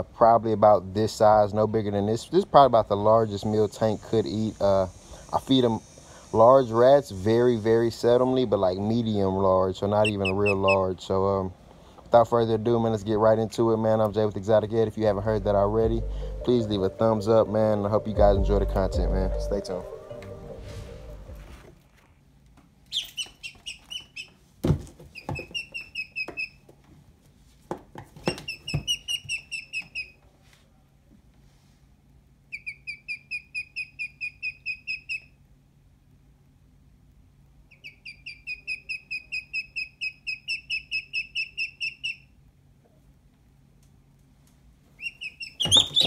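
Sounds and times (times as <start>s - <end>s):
duckling peeping: 9.9s - 10.9s, 22.9s - 24.3s, 25.2s - 26.6s, 28.3s - 30.2s, 32.5s - 35.4s, 37.7s - 42.4s, 45.0s - 46.0s.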